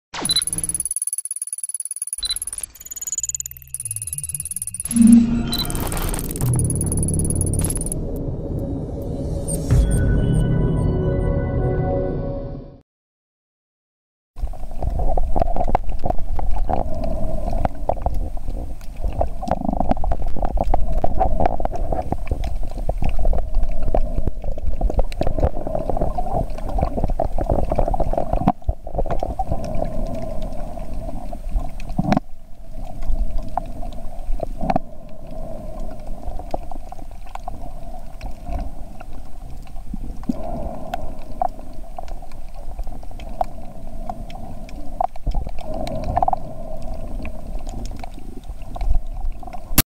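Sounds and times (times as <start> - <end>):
faint underwater clicks: 0.3 - 5.1, 5.7 - 8.2, 14.5 - 49.8
muffled underwater rumble: 14.4 - 49.8.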